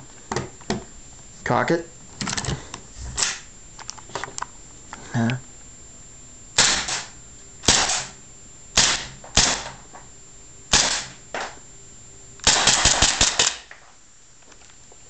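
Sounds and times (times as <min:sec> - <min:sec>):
airsoft pistol shots: 0:03.2 - 0:03.4, 0:06.6 - 0:08.2, 0:08.8 - 0:09.7, 0:10.7 - 0:11.2, 0:12.4 - 0:13.7.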